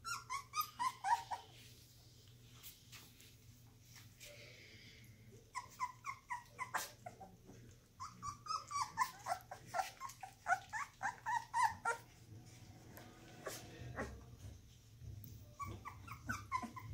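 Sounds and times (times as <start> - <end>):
puppies whimpering and squeaking: 0.0 - 1.8, 5.3 - 12.6, 13.2 - 16.9.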